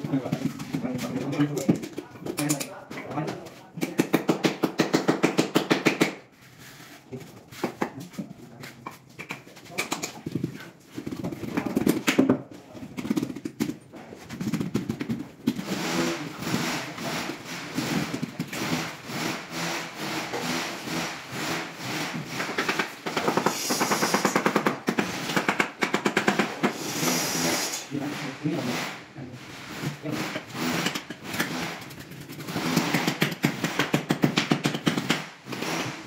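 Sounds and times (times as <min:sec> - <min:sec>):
tile slabs scraping on floor: 0:12.9 - 0:19.4, 0:26.6 - 0:28.8.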